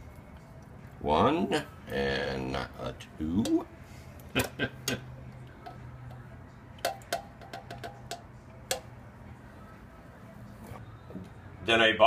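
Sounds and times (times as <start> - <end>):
metal cans knocking and clinking: 6.8 - 8.9.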